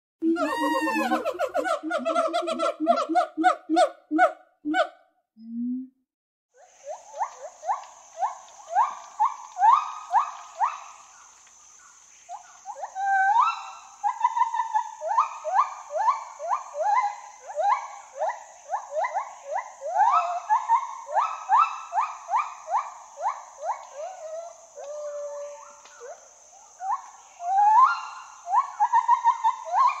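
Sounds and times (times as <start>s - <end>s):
gibbon hooting: 0.2s - 4.9s.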